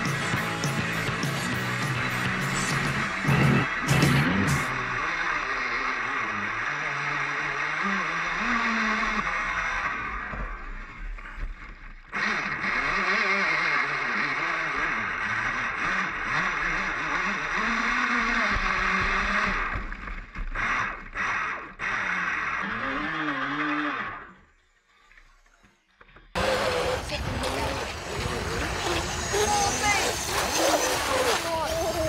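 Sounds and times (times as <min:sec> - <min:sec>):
boat motor whining: 0:00.0 - 0:32.0
water rushing: 0:26.4 - 0:32.0.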